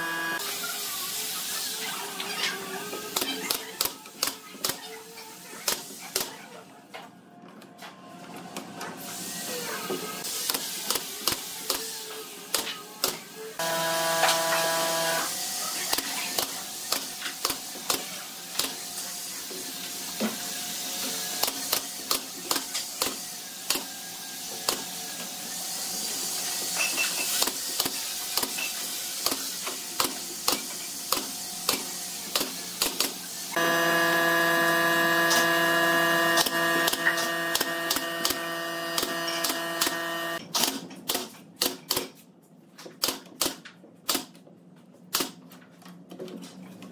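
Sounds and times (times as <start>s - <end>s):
steady mechanical hum: 10.8s - 19.6s, 29.2s - 40.6s
nail gun firing: 36.2s - 40.4s.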